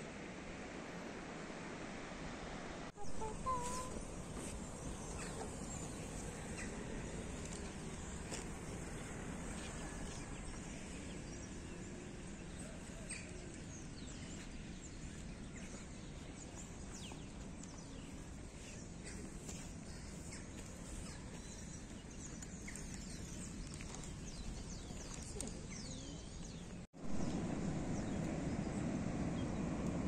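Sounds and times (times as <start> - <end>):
outdoor background hiss: 0.0 - 23.6
steady low rumble: 0.0 - 30.0
small birds chirping: 3.0 - 28.8.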